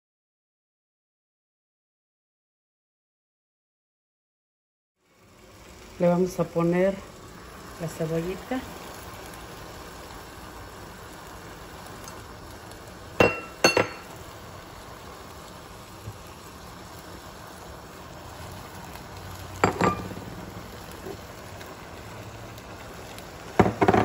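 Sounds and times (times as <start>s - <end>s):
kitchen utensils clinking: 13.2s - 14.1s, 19.6s - 20.2s, 23.6s - 24.0s.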